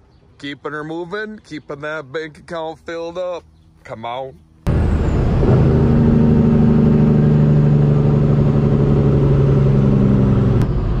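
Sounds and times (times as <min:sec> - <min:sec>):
engine running loud: 0:04.7 - 0:11.0.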